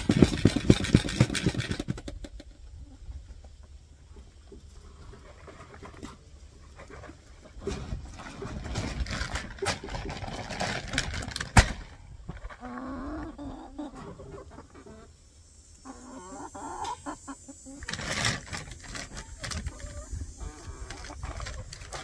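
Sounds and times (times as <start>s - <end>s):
chickens clucking: 0.0s - 22.0s
plastic feed bags rustling: 7.1s - 12.7s, 17.8s - 22.0s.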